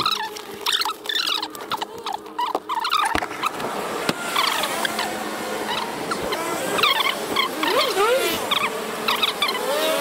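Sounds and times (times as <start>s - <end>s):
squeaky sped-up chirps: 4.3s - 9.9s.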